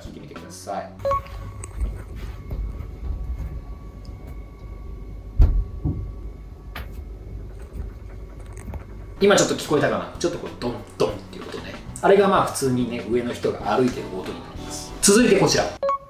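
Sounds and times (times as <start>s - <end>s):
footsteps thudding through ceiling: 5.4s - 7.0s.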